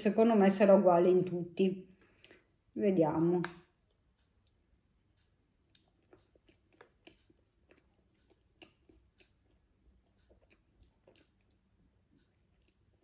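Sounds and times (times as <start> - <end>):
person chewing: 3.8 - 13.0.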